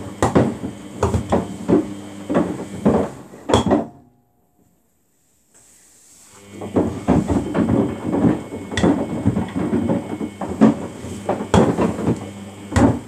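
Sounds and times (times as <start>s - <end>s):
washing machine drum tumbling: 6.5s - 13.0s
plastic drawer knocking against drum: 6.7s - 13.0s.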